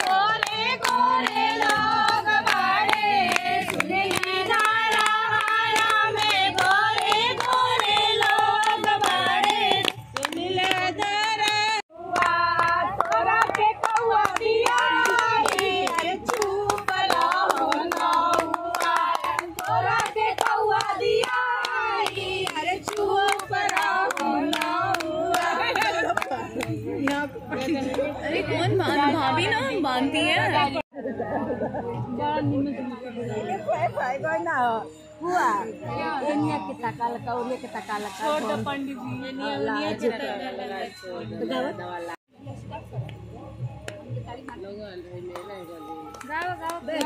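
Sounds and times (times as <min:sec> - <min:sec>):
women singing folk song: 0:00.0 - 0:26.3
hand-clapping: 0:00.0 - 0:28.2, 0:43.8 - 0:44.6, 0:45.2 - 0:47.0.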